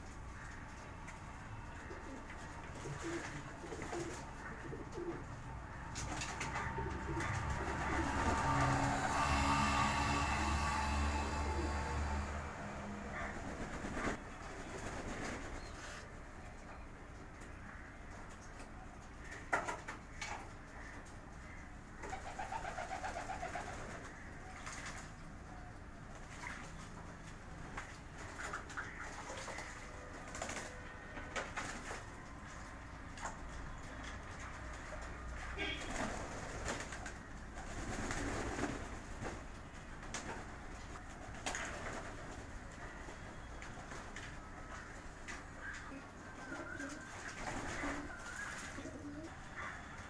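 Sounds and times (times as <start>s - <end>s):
wings flapping: 0.4s - 16.0s, 22.0s - 25.2s, 27.6s - 49.3s
pigeons cooing: 1.6s - 14.2s, 22.0s - 24.4s, 44.7s - 50.0s.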